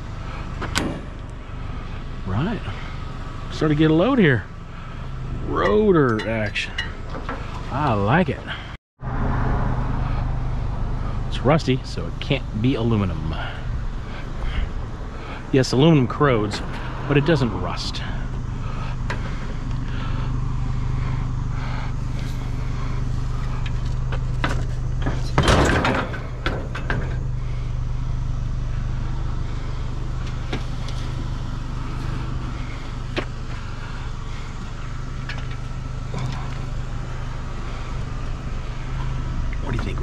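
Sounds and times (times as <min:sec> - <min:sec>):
vehicle engine humming: 0:00.0 - 0:40.0.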